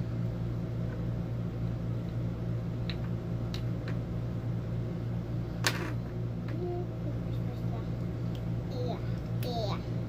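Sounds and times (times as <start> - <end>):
appliance electrical hum: 0.0 - 10.0.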